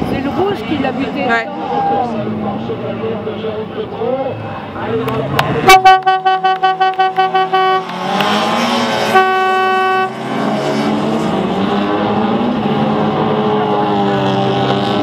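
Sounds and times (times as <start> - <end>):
race car engines running: 0.0 - 15.0
horn blast: 5.6 - 10.5.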